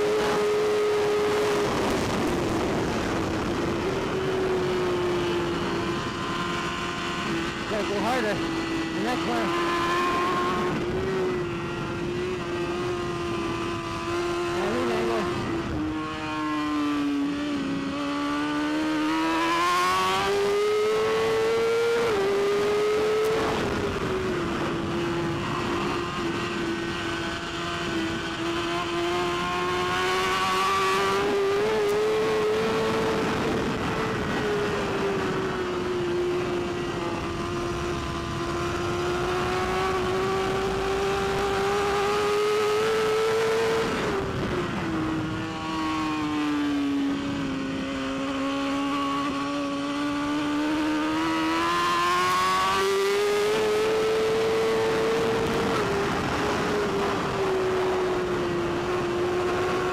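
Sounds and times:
motorcycle engine at race pace: 0.0 - 59.9.

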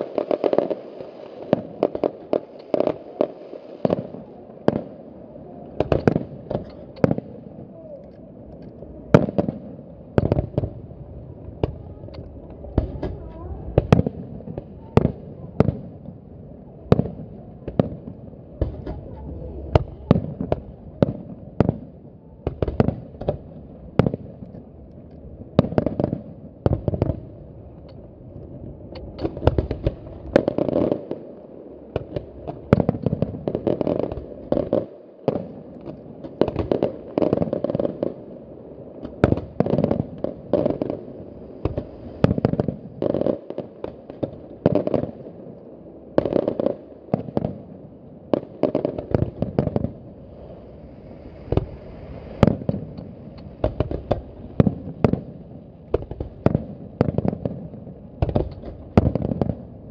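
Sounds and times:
continuous low rumble: 4.1 - 30.5.

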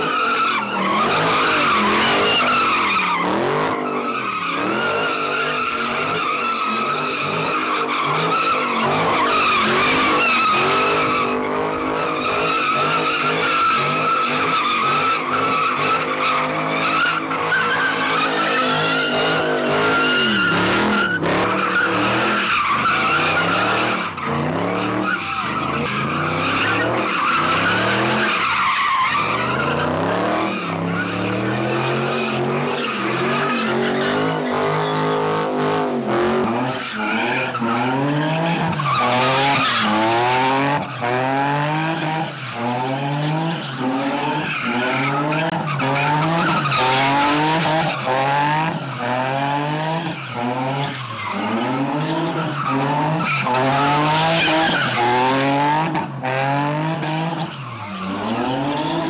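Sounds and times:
car engine revving: 0.0 - 59.0
tyres squealing and skidding: 0.0 - 59.0.

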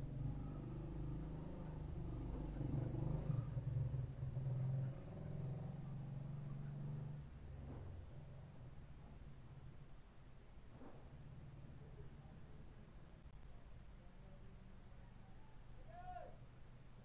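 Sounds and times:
motorcycle tricycle engine passing: 0.0 - 8.9.

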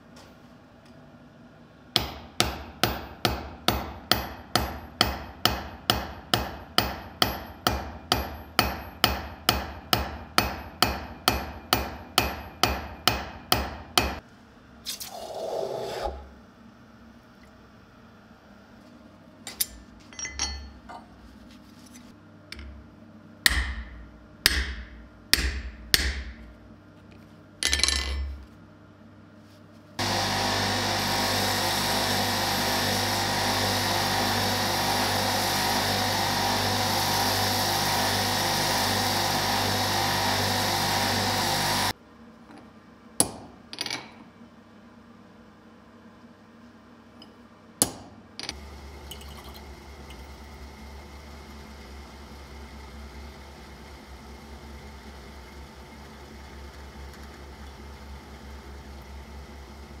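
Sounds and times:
hammer strikes on anvil: 2.0 - 14.2, 23.5 - 26.4, 43.2 - 44.2, 47.8 - 48.2
belt grinder grinding steel: 30.0 - 41.9.

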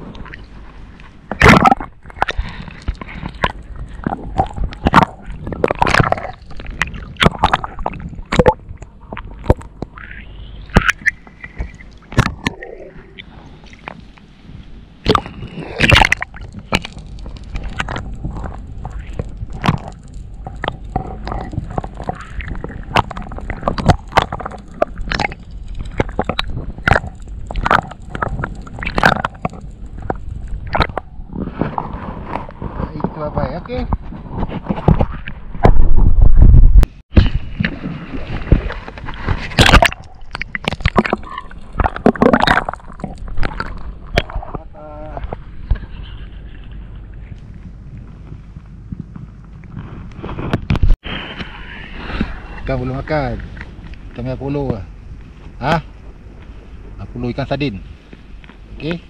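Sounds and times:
water sloshing against hull: 0.0 - 33.2, 37.1 - 59.0
water splashes: 1.3 - 32.8, 37.1 - 46.2.

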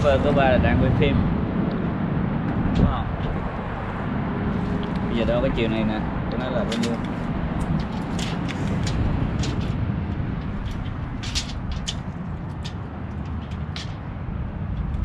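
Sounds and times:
low outdoor rumble: 0.0 - 15.0
tape measure clicks and rustles: 6.7 - 9.8, 10.4 - 14.0.

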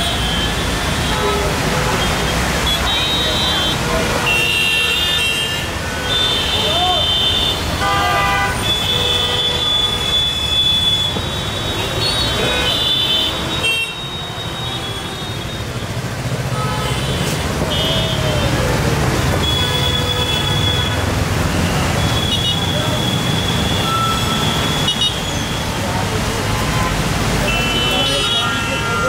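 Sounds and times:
vehicle horns honking: 0.0 - 25.8, 26.4 - 29.0
traffic rumble: 0.0 - 29.0.

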